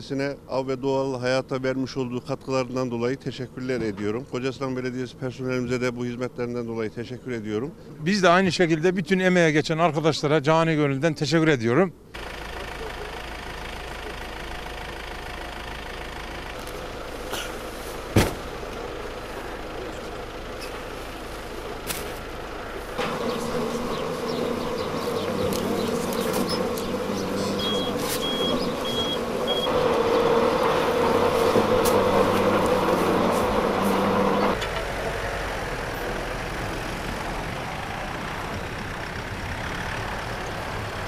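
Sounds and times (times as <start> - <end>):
engine running: 12.1 - 41.0
short high beeps: 27.6 - 29.7.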